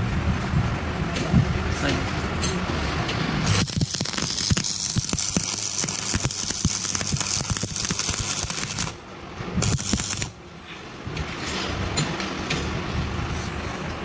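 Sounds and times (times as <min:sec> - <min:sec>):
welding arc crackling: 0:03.4 - 0:09.0, 0:09.6 - 0:10.4.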